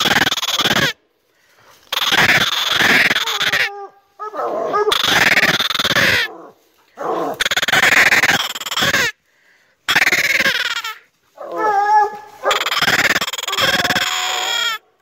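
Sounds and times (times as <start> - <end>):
hound baying: 3.3 - 5.4, 6.1 - 7.5, 11.4 - 14.6.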